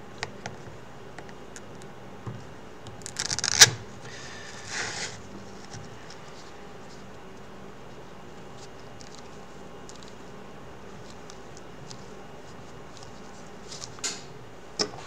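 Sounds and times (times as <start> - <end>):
velcro crackling rip: 3.1 - 3.8.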